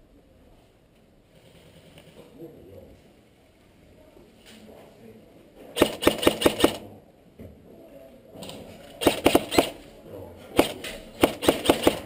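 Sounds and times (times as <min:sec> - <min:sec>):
airsoft gun shots: 0:05.8 - 0:06.9, 0:09.0 - 0:09.8, 0:10.6 - 0:12.0.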